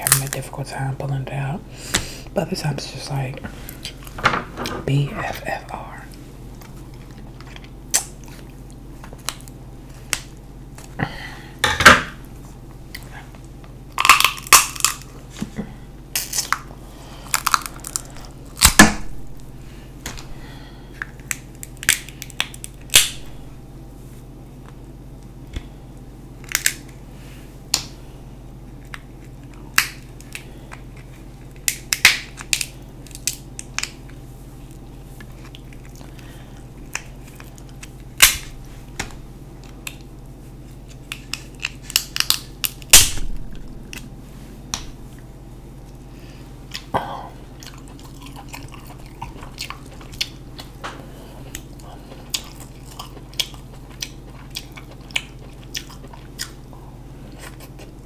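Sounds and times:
crab shells cracking: 6.6s - 10.9s, 13.9s - 15.2s, 16.1s - 19.0s, 21.0s - 23.3s, 26.4s - 27.0s, 28.7s - 38.6s, 40.8s - 44.1s, 51.5s - 56.7s
chewing: 34.0s - 38.1s, 46.7s - 46.9s, 47.5s - 58.0s.

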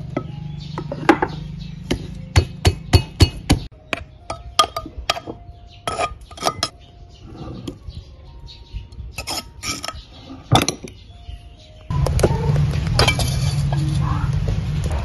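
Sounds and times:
metal pestle pounding in mortar: 0.1s - 6.7s.

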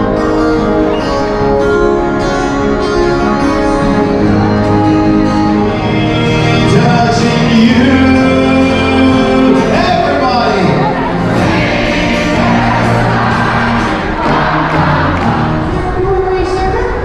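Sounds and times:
acoustic guitars playing: 0.0s - 16.6s
person singing: 5.2s - 12.6s.

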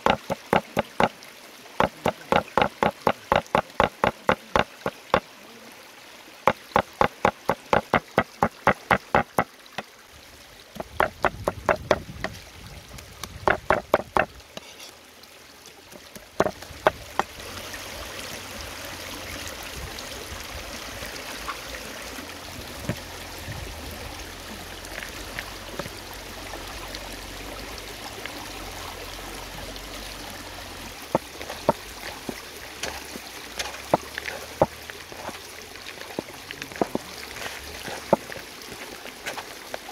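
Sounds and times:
cleaver chopping on wooden board: 0.0s - 1.1s, 1.8s - 5.2s, 6.5s - 9.9s, 10.8s - 12.4s, 13.2s - 14.3s, 16.0s - 17.3s
stream running: 0.0s - 39.9s.

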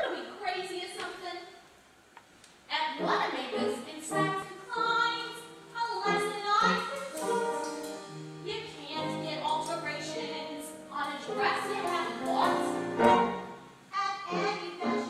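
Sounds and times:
woman singing a show tune: 2.7s - 12.8s, 13.9s - 15.0s.

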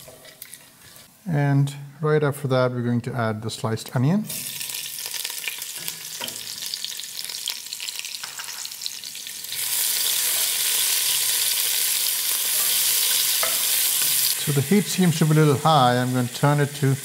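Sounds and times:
spices crackling in hot oil: 0.0s - 1.1s, 4.3s - 17.0s
onion sizzling in oil: 4.3s - 17.0s.

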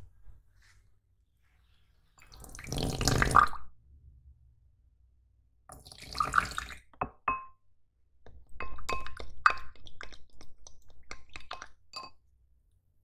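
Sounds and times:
spoon tapping glass bowl: 7.0s - 7.6s, 8.3s - 10.1s, 11.1s - 12.2s
spatula clinking in glass bowl: 8.5s - 9.8s, 11.1s - 12.2s.

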